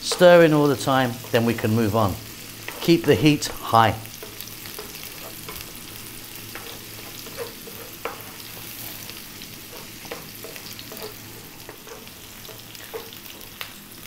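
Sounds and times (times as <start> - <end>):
onion and garlic sizzling in oil: 0.0 - 14.0
wooden spoon knocking a pan: 9.7 - 13.6.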